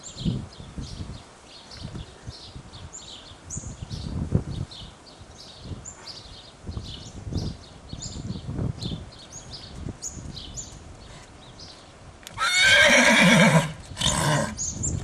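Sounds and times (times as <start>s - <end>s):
birds chirping: 0.0s - 15.0s
horse whinnying: 12.3s - 14.6s.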